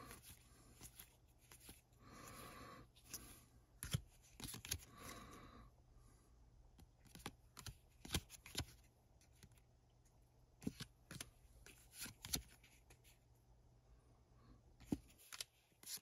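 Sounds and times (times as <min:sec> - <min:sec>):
trading cards clicking and sliding: 0:00.1 - 0:05.1.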